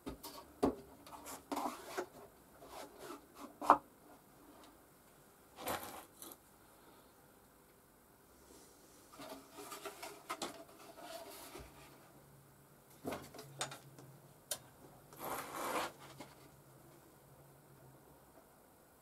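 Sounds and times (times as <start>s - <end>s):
rubbing and scraping on workbench: 1.1s - 3.7s, 15.2s - 16.5s.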